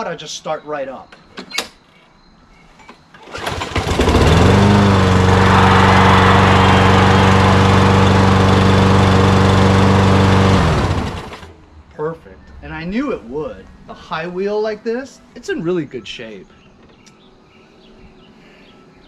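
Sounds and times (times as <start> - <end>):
lawn mower engine running: 3.2 - 11.5.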